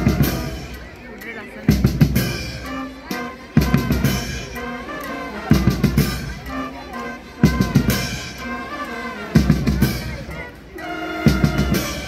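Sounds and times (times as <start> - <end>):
snare and bass drum strokes: 0.0 - 0.8, 1.7 - 4.6, 5.5 - 6.6, 7.4 - 8.5, 9.3 - 10.4, 11.2 - 12.0.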